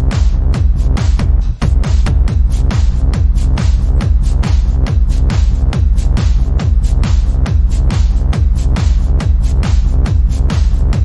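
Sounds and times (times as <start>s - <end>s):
hi-hat strikes: 0.0s - 11.0s
kick drum: 0.0s - 11.0s
techno music: 0.0s - 11.0s.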